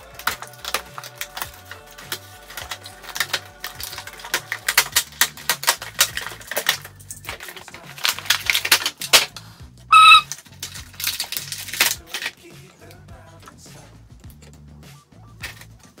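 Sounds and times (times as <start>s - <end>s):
plastic packaging crackling: 0.0s - 9.5s, 10.1s - 12.6s
quiet background music: 0.0s - 16.0s
short high-pitched tone: 9.9s - 10.2s.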